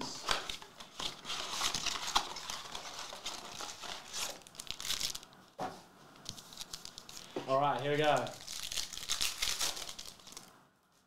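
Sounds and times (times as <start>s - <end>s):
foil wrappers crinkling: 0.1s - 5.3s, 6.3s - 10.5s.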